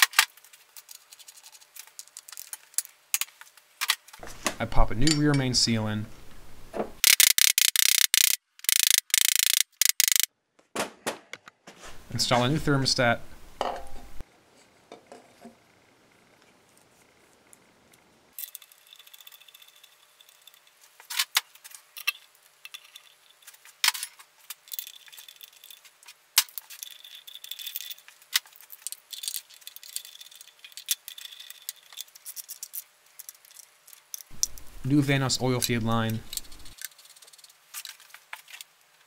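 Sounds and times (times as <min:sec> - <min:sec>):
ratchet clicking: 0:07.0 - 0:10.3
metallic clinks and rattles: 0:18.4 - 0:20.9, 0:21.7 - 0:34.6.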